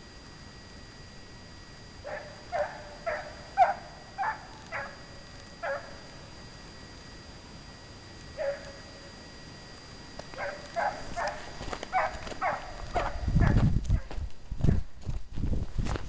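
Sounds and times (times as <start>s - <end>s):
hound baying: 2.0s - 6.0s, 8.4s - 8.8s, 10.4s - 14.1s.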